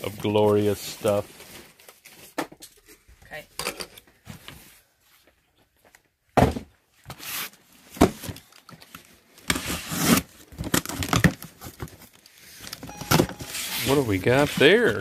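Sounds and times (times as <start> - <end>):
box cutter slitting packing tape: 9.5 - 10.3.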